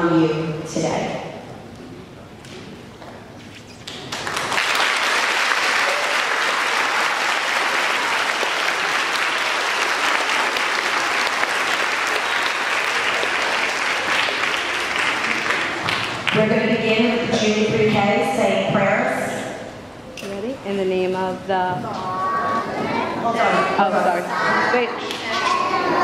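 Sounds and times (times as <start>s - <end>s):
children clapping: 3.8s - 16.4s.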